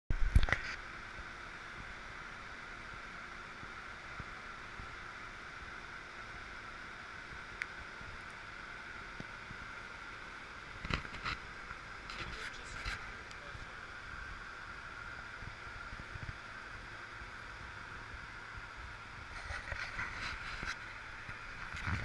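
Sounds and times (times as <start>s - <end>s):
cockpit airflow hiss: 0.4s - 22.0s.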